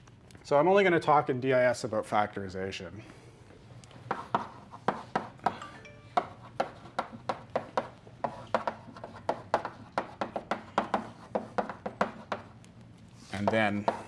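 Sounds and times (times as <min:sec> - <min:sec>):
chalk tapping and scraping on blackboard: 0:03.9 - 0:05.6, 0:06.2 - 0:14.0.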